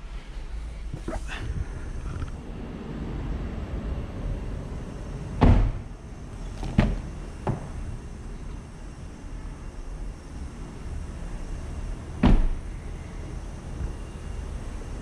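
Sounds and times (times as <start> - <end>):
low steady hum: 0.0 - 15.0
car door shutting with thud: 5.4 - 5.8, 6.5 - 7.8, 12.2 - 12.7
car door unlatching and opening: 5.4 - 5.8, 6.4 - 7.9, 12.2 - 12.6.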